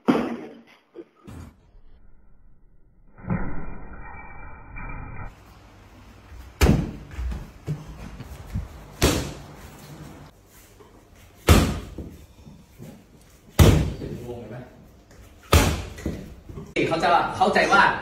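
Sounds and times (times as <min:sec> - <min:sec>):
kicks landing with slapping thuds: 0:06.6 - 0:07.8, 0:08.6 - 0:09.5, 0:11.4 - 0:12.1, 0:13.5 - 0:14.0, 0:15.5 - 0:16.4.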